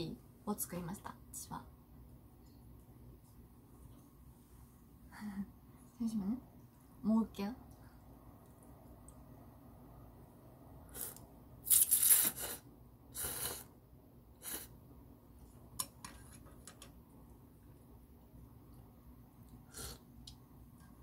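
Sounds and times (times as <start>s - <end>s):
noodles being slurped: 11.0s - 13.7s.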